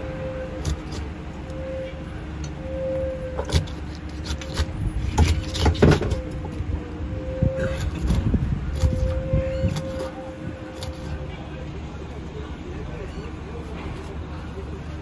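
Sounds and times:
low rumble of engines: 0:00.0 - 0:15.0
fish being cut on a board: 0:03.4 - 0:06.2.

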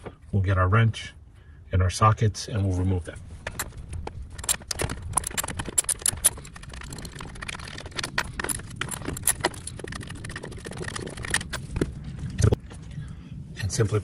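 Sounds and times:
small metallic clicks: 0:03.4 - 0:12.5
socket wrench ratcheting: 0:03.5 - 0:11.6.

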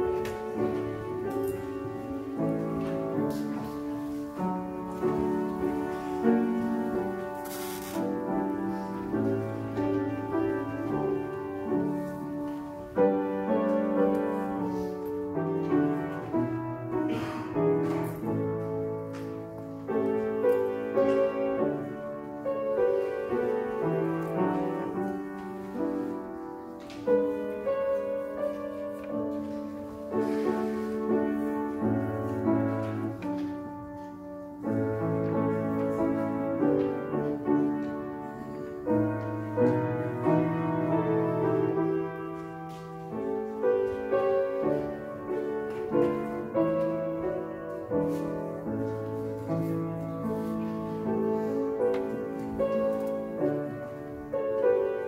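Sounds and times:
slow piano chords: 0:00.0 - 0:55.0.

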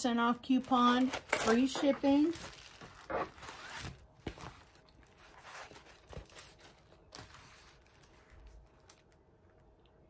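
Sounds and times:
rustling and crinkling of glossy canvases: 0:00.3 - 0:09.8.

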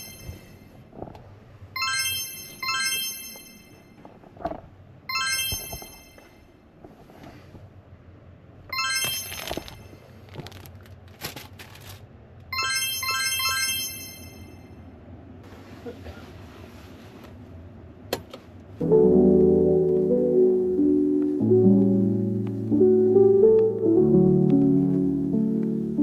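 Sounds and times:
electronic chiming jingle: 0:01.8 - 0:04.0, 0:05.1 - 0:06.4, 0:08.8 - 0:09.7, 0:12.6 - 0:14.7.

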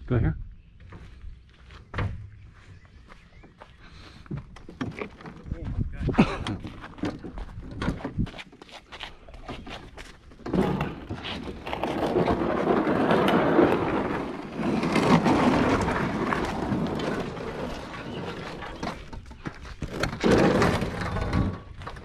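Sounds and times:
canoe scraping over concrete: 0:09.4 - 0:22.0.

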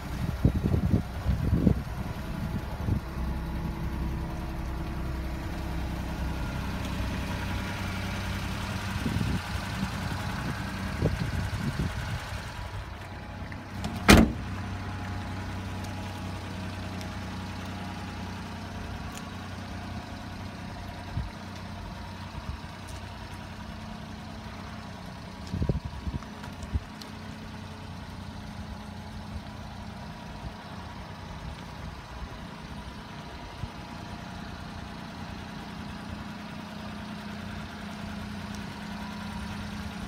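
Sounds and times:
truck engine idling: 0:00.0 - 0:40.0
cab door slamming: 0:13.8 - 0:14.5.

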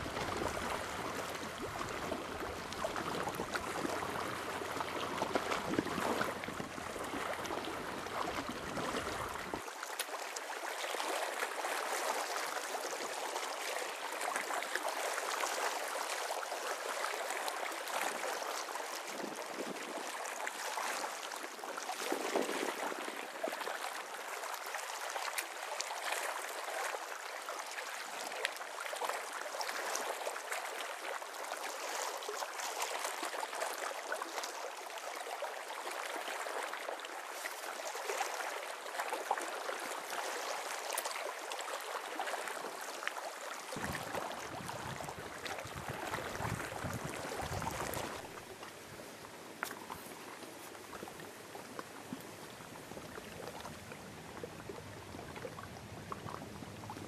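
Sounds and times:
fine crackling splashes: 0:00.0 - 0:57.0
river water lapping on rocks: 0:00.0 - 0:57.0.

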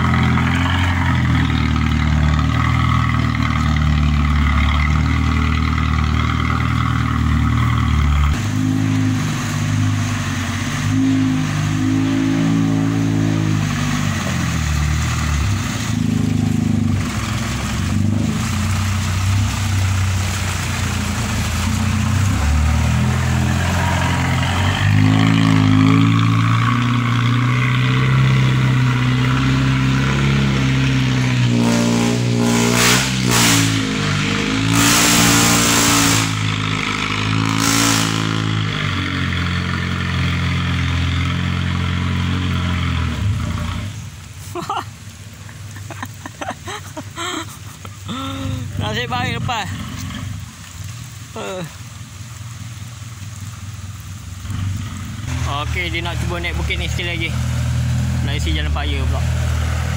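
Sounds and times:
vehicle engine revving hard: 0:00.0 - 0:44.0, 0:54.4 - 0:59.9.

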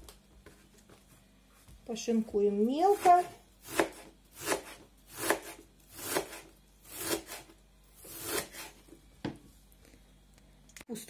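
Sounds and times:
knife slicing cabbage on board: 0:02.9 - 0:08.8.

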